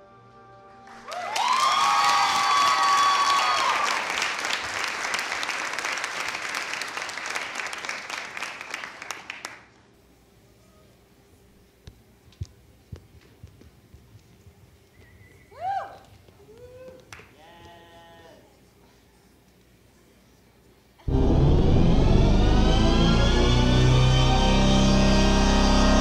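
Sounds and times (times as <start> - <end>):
audience applauding: 0.9 - 9.7
voices cheering: 1.1 - 4.1.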